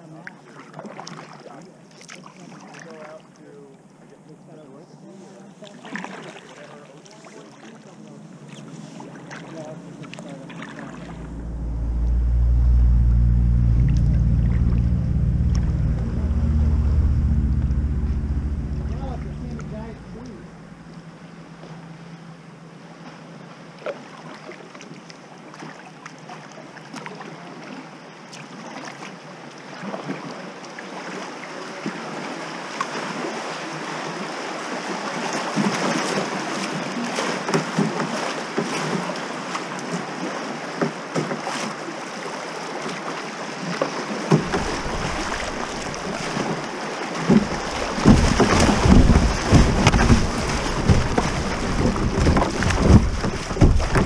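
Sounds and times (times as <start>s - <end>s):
water splashing against hull: 0.0s - 3.4s, 5.4s - 54.0s
rushing river water: 5.0s - 54.0s
low rumbling buffets: 9.7s - 23.0s, 44.3s - 54.0s.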